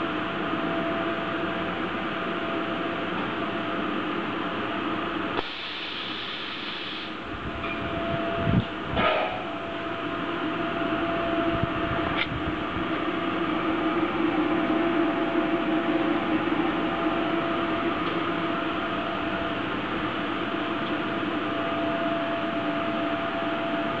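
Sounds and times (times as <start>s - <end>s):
electrical hum: 0.0s - 24.0s
fan-like hiss: 5.4s - 7.3s.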